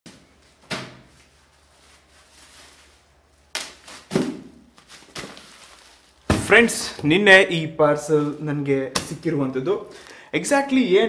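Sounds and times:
bubble wrap crinkling: 1.1 - 7.0.

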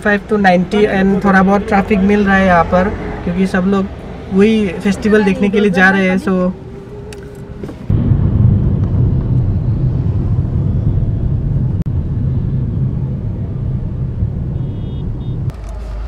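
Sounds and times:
car engine and road noise: 0.0 - 16.0.

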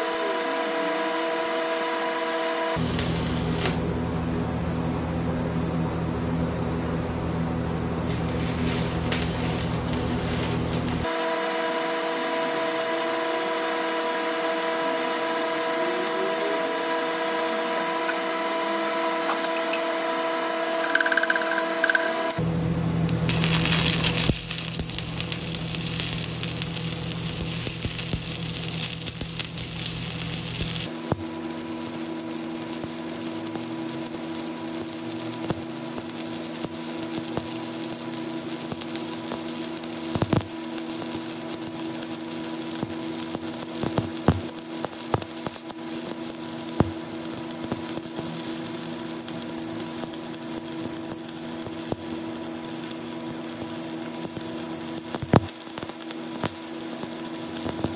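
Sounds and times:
welding arc crackling: 0.0 - 4.7, 6.8 - 18.3, 20.8 - 57.9
spatter pops: 8.0 - 11.2, 23.2 - 57.9.

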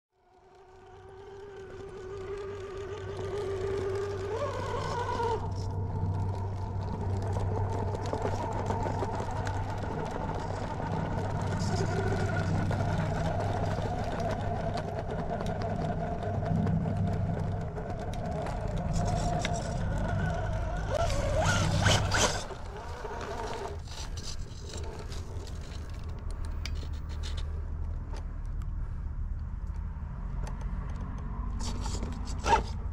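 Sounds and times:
low hum: 0.1 - 30.0
electric motor whining: 0.2 - 26.0.

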